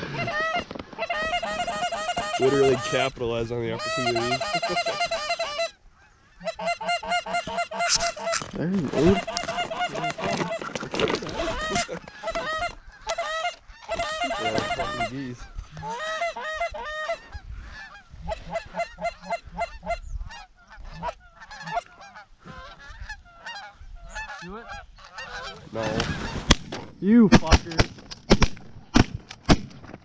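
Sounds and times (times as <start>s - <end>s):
geese honking and clucking: 0.0s - 26.9s.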